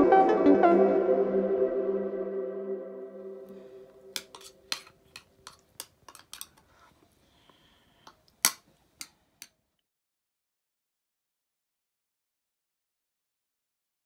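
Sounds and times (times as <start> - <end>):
cutlery clinking on a plate: 4.2 - 6.6, 8.4 - 9.6.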